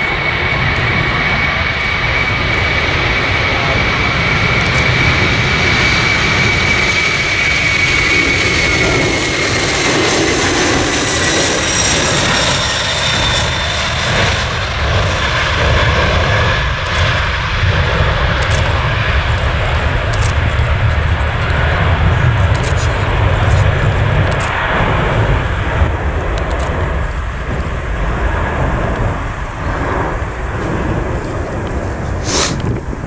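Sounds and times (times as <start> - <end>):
jet engines roaring: 0.0 - 33.0.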